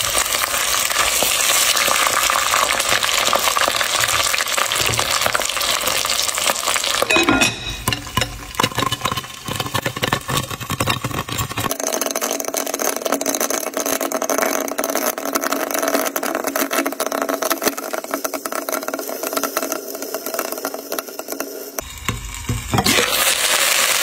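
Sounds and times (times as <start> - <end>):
food sizzling in oil: 0.0 - 11.7, 19.8 - 24.0.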